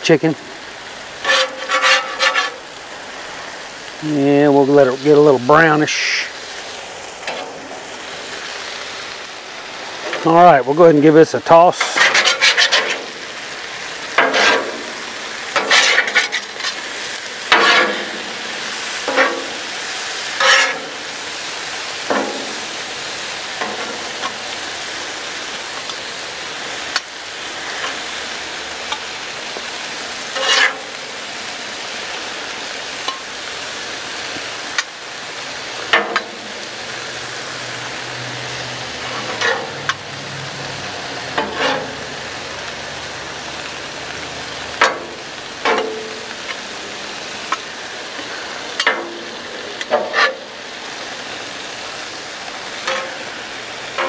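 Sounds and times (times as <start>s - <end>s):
chicken sizzling on griddle: 0.0s - 54.0s
metal spatulas scraping: 1.2s - 2.7s, 11.8s - 13.2s, 14.2s - 18.4s, 19.0s - 21.1s, 30.3s - 31.0s, 39.0s - 40.0s, 41.4s - 42.1s, 49.8s - 50.6s, 52.8s - 53.2s.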